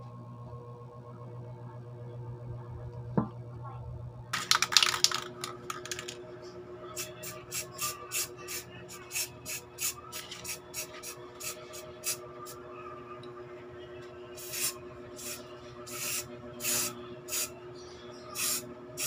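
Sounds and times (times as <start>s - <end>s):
aerosol spray can hissing: 14.4s - 17.5s.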